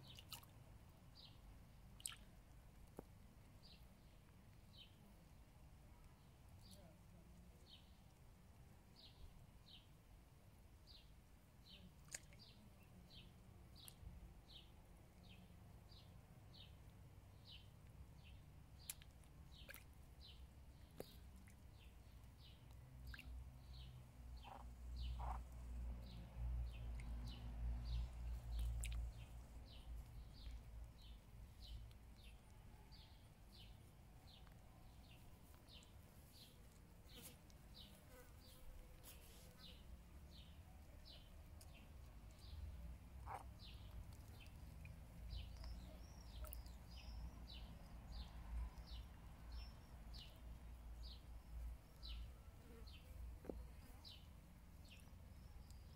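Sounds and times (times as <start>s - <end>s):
bird chirping: 17.4s - 55.9s.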